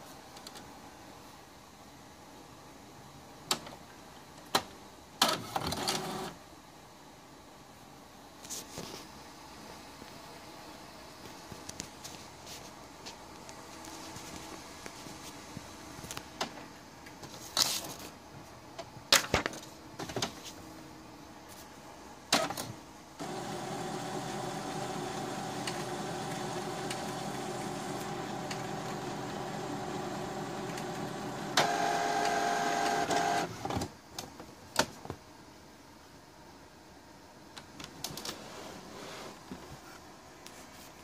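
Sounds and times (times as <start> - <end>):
printer motor running: 23.2 - 33.5.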